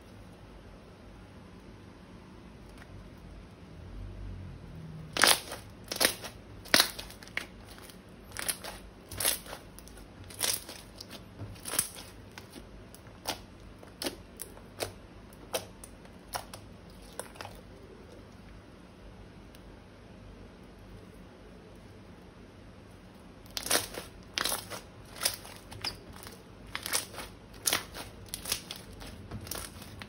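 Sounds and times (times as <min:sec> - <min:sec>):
slime popping and crackling: 0:05.1 - 0:17.6, 0:23.5 - 0:30.0.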